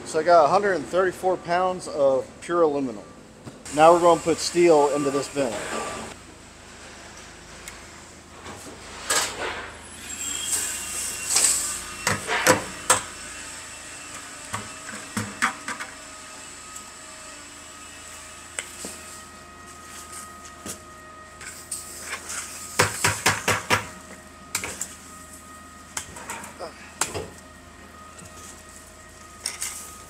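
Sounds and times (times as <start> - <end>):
steady background hum: 0.0 - 30.0.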